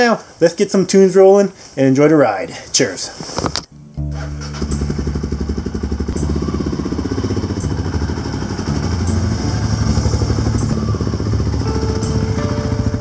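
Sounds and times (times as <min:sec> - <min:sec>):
motorcycle engine running: 0:04.0 - 0:13.0.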